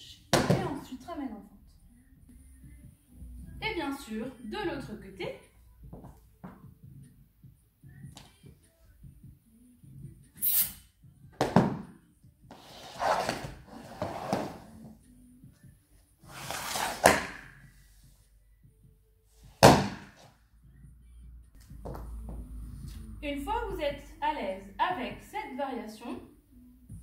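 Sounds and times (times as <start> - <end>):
swishing slides on floor: 12.5 - 14.8, 16.2 - 17.3.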